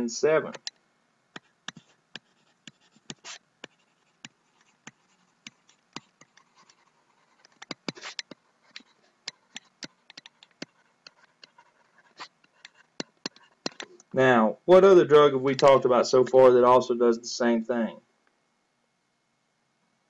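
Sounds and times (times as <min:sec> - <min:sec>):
stylus tapping on pen tablet: 0:00.5 - 0:00.8, 0:01.4 - 0:14.0.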